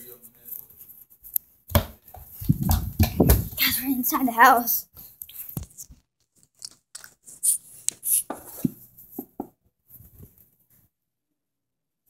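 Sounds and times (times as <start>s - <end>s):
microphone handling rustles: 2.1s - 3.6s.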